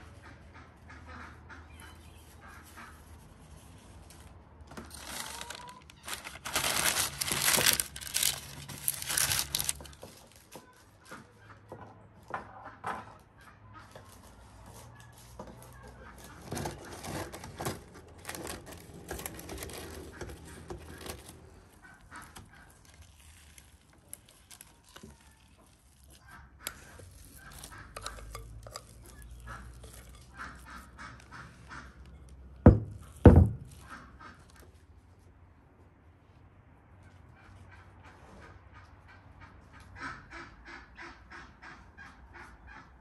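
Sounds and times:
farmyard fowl calling: 0.0s - 3.3s, 25.5s - 32.3s, 37.3s - 43.0s
spoon scraping batter from glass bowl: 26.7s - 30.9s.

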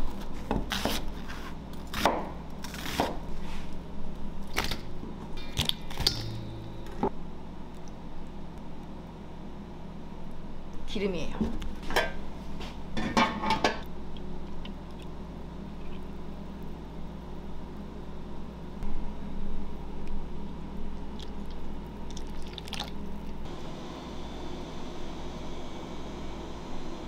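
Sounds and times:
steady low hum: 0.0s - 27.0s
metal lid clattering: 13.0s - 13.8s
oil pouring: 22.1s - 23.1s.

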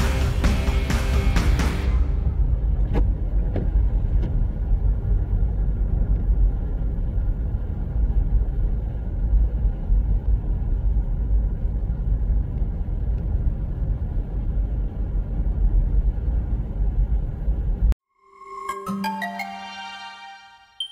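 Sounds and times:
car driving rumble: 0.0s - 18.0s.

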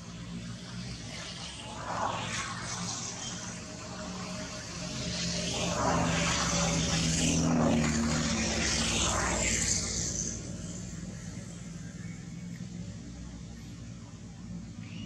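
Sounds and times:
engine passing by: 0.0s - 15.0s.

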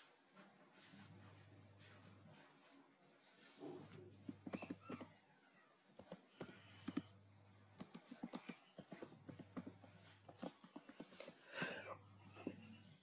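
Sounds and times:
keyboard typing: 4.2s - 5.2s, 6.0s - 12.6s.

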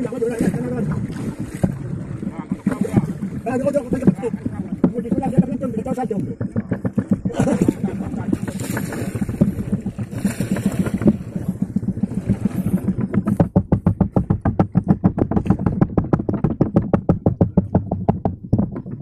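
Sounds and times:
small boat engine putt-putt: 0.0s - 19.0s
wind: 0.0s - 19.0s.

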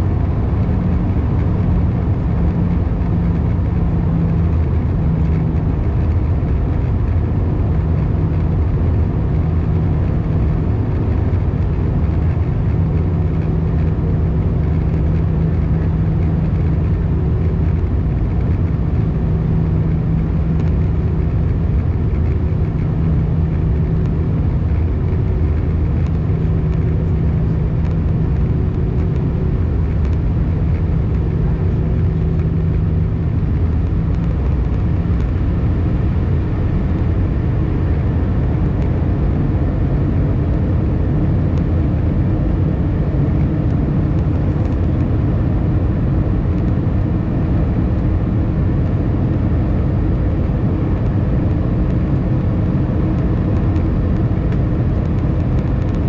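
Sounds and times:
airplane engine drone and rushing air: 0.0s - 56.0s
low hum: 0.0s - 56.0s.

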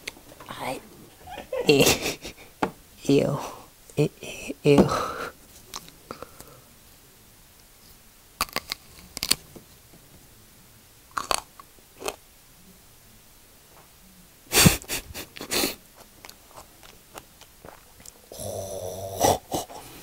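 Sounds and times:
wet chewing and biting: 8.4s - 9.4s.

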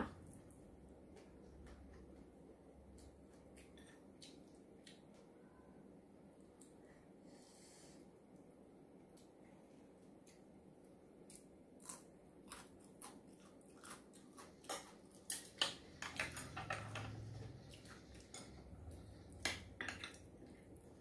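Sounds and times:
chewing: 11.3s - 20.9s.

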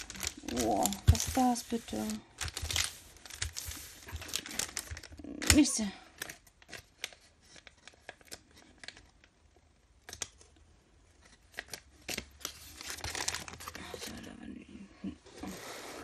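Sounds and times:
paper rustling: 0.0s - 9.0s, 11.2s - 14.3s.

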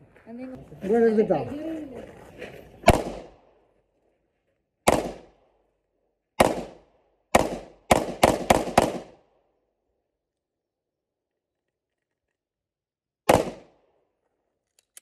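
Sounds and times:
pistol shots: 2.8s - 3.5s, 4.8s - 5.4s, 6.4s - 9.3s, 13.3s - 13.8s.

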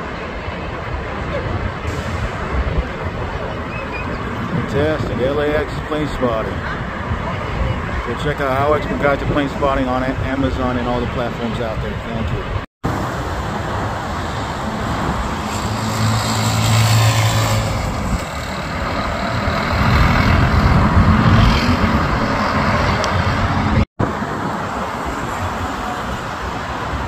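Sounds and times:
cars driving past: 12.8s - 27.0s.

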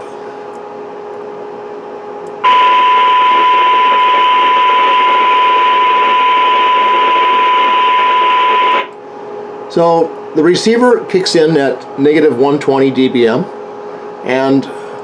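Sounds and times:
steady test tone: 2.4s - 9.0s.

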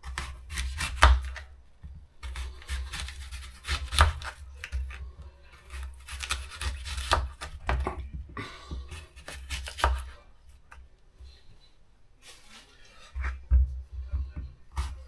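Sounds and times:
knife slicing apples: 0.0s - 1.5s, 2.2s - 8.0s, 8.7s - 10.3s, 14.7s - 15.0s.

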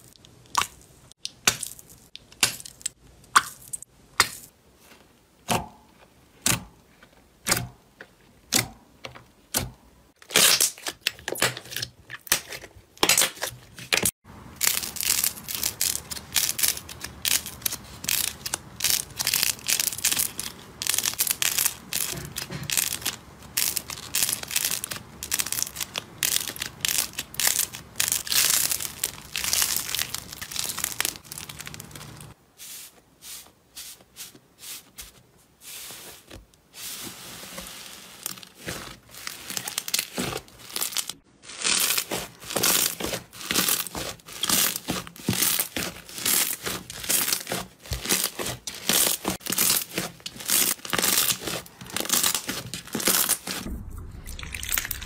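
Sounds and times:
slime crackling and popping: 10.2s - 32.4s, 38.2s - 55.0s.

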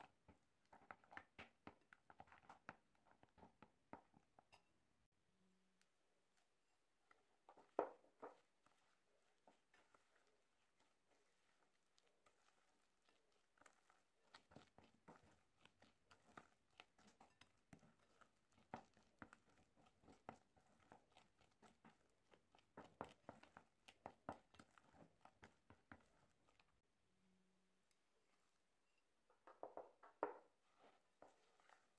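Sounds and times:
spatula scraping a bowl: 8.2s - 26.7s, 30.6s - 31.9s.

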